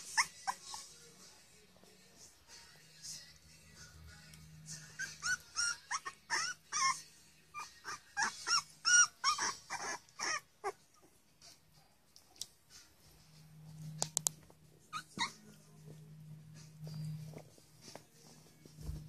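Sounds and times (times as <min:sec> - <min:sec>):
puppies squeaking and whimpering: 0:00.0 - 0:01.1, 0:04.7 - 0:11.6, 0:14.5 - 0:15.8.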